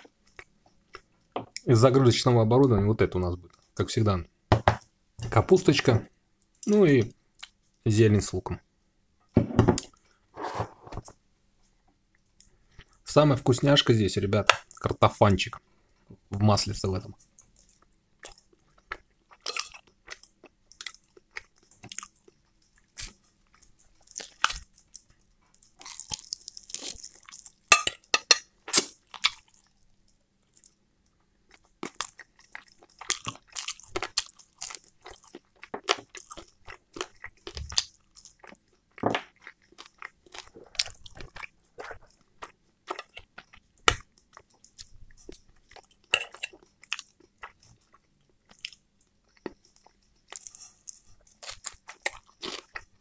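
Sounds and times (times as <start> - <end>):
wet crunchy chewing: 17.4 - 29.8, 31.5 - 53.0.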